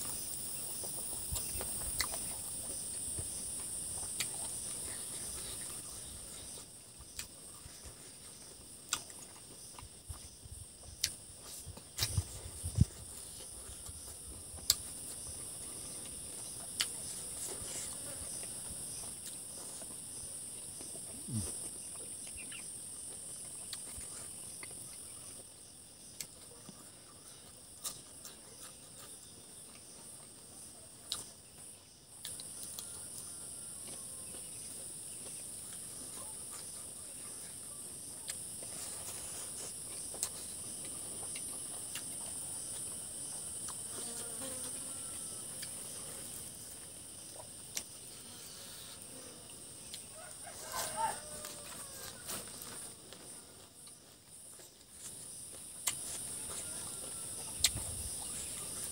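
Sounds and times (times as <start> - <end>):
insects chorus: 0.0 - 58.9
person chewing: 0.1 - 25.2, 32.2 - 34.5, 38.2 - 44.0, 53.1 - 58.9.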